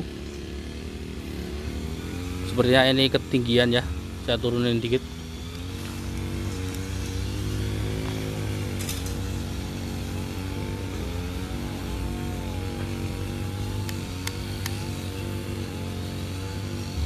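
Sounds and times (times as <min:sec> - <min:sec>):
small motor droning hum: 0:00.0 - 0:17.0.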